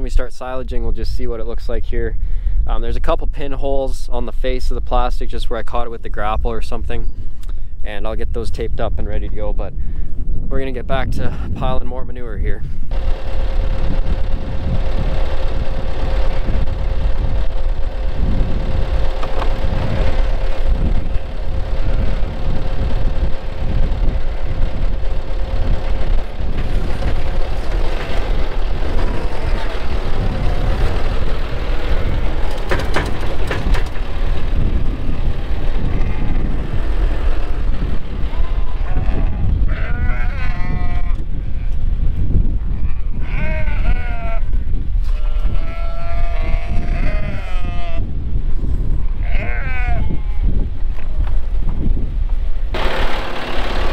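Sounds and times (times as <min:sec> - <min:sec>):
steady whine: 0:12.4 - 0:39.2, 0:52.6 - 0:53.9
tractor engine running: 0:12.7 - 0:39.2, 0:51.0 - 0:53.9
sheep bleating: 0:35.8 - 0:36.7, 0:38.4 - 0:41.8, 0:42.7 - 0:48.1, 0:49.2 - 0:50.6.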